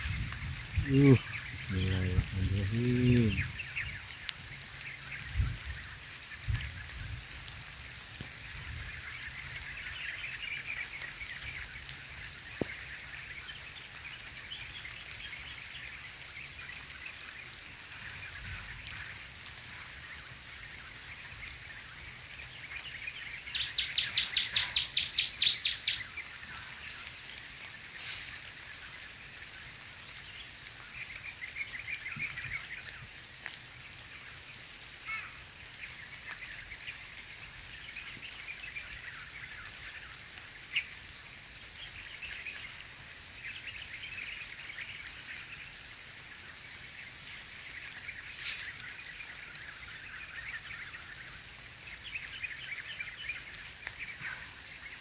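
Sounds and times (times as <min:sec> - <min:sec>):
high chirping calls: 0:00.0 - 0:06.8, 0:22.5 - 0:29.3
light rain: 0:00.0 - 0:55.0.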